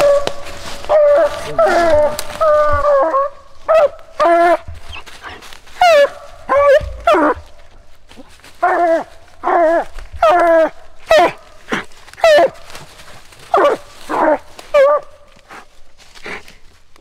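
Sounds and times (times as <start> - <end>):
hound barking: 0.0 - 7.7, 8.6 - 12.8, 13.5 - 15.3.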